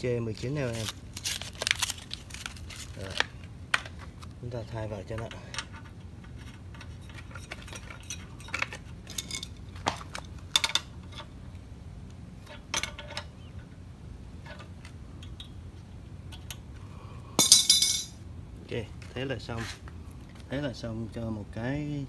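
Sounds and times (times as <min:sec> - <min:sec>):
metallic clatter: 0:17.4 - 0:18.2
wrench clicking and clinking: 0:17.4 - 0:18.2.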